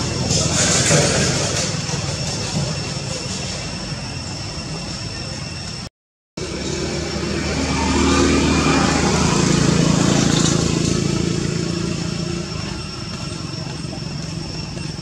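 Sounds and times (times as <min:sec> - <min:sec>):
vehicle engine passing by: 0:06.4 - 0:13.9.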